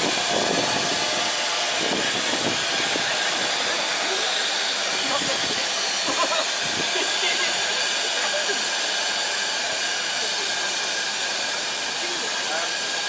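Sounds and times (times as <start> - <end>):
steam hissing: 0.0 - 13.0.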